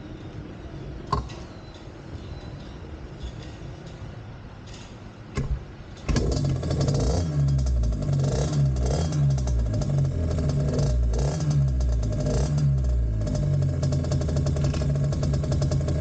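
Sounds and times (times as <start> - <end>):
small motorbike engine revving: 6.1 - 16.0.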